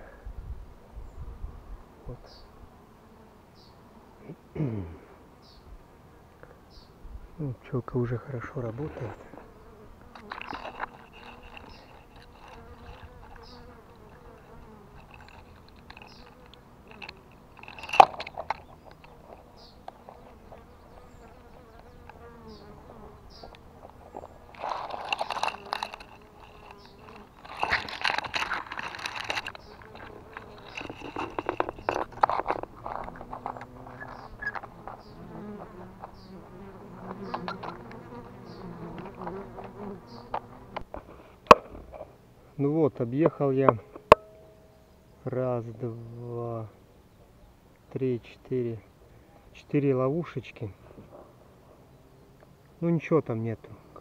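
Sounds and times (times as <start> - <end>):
honeybees buzzing: 8.5 - 41.5.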